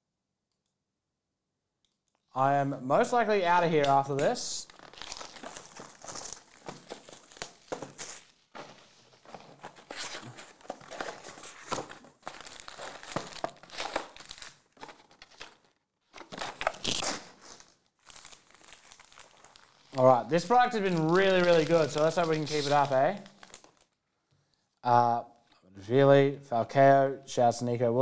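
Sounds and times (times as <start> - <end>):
foil packs crinkling: 3.6 - 24.0.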